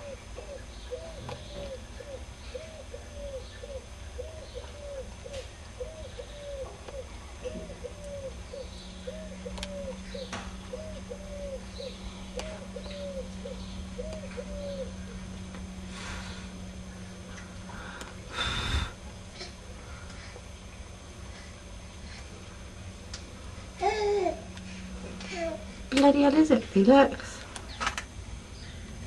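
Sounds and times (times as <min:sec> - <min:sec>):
pigeon cooing: 0:00.0 - 0:15.3
low steady hum: 0:00.0 - 0:29.0.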